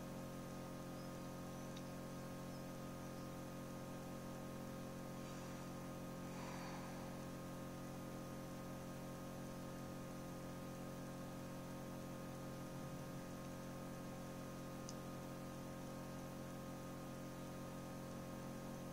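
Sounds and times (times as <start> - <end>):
incubator fan motor hum: 0.0 - 18.9
light hiss: 1.0 - 10.4.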